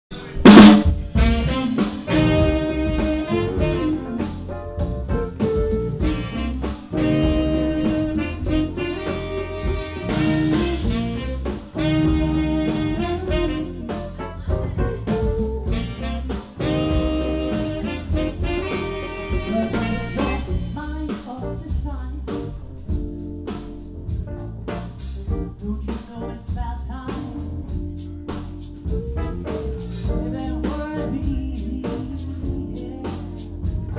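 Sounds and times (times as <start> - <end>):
live band playing: 0.2 - 33.9
saxophone horn section: 0.5 - 20.8.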